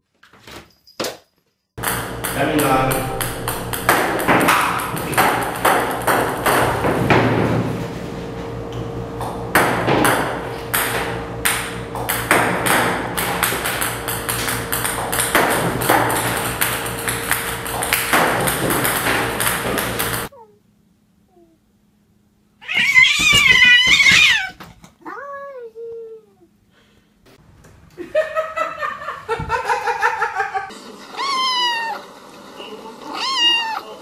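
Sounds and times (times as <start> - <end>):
ping-pong balls clicking on table: 1.8 - 6.9, 10.8 - 20.3.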